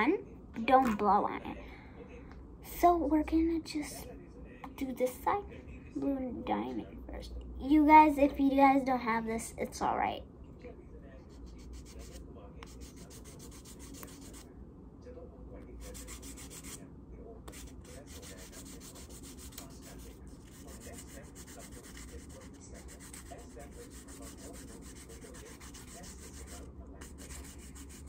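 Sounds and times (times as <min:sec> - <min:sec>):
nail buffer rubbing fingernails: 0:11.3 - 0:14.4, 0:15.8 - 0:16.8, 0:17.5 - 0:28.0.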